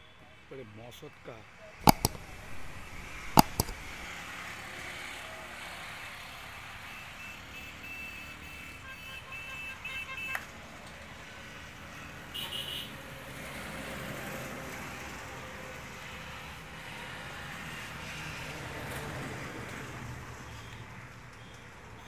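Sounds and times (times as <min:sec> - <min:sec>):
highway traffic passing: 0:00.0 - 0:22.0
sharp clicks: 0:01.8 - 0:04.1
vehicle horn beeping: 0:06.9 - 0:10.5, 0:12.3 - 0:12.9.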